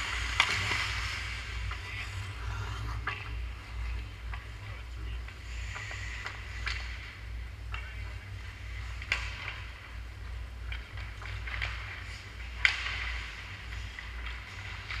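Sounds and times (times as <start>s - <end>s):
hockey sticks and puck clacking: 0.0s - 2.0s, 5.6s - 15.0s
steady low hum: 0.0s - 15.0s.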